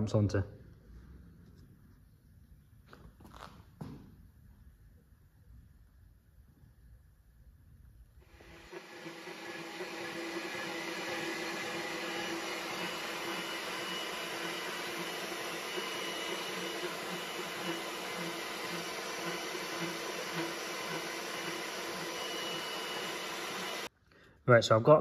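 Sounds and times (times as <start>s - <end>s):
line boring machine whirring: 8.3s - 23.9s.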